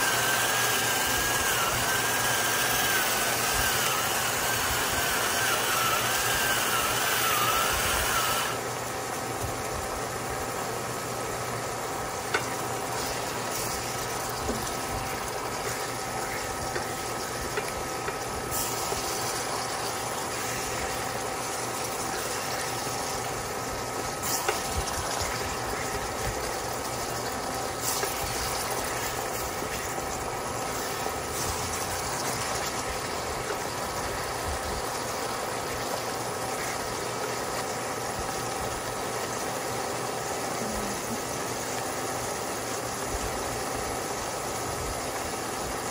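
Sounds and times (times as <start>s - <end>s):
cooktop hum with faint whine: 0.0s - 45.9s
food simmering and sizzling: 0.0s - 45.9s
spatula stirring greens: 11.1s - 35.1s
spatula tapping pot: 16.4s - 18.3s.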